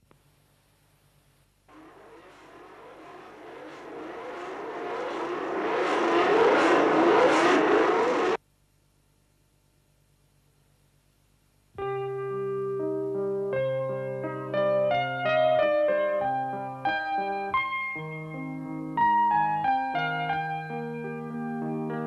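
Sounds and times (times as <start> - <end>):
racing car engine revving: 1.7 - 8.4.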